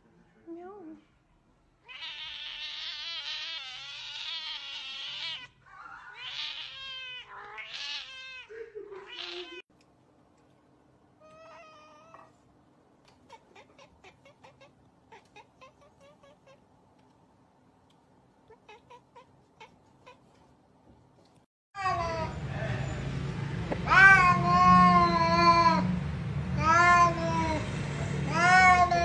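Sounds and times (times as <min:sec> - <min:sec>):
cats meowing and yowling: 0:01.8 - 0:09.6, 0:11.2 - 0:12.3, 0:13.1 - 0:16.6, 0:18.5 - 0:20.3, 0:21.8 - 0:23.0, 0:23.8 - 0:25.9, 0:26.6 - 0:27.7, 0:28.3 - 0:29.0.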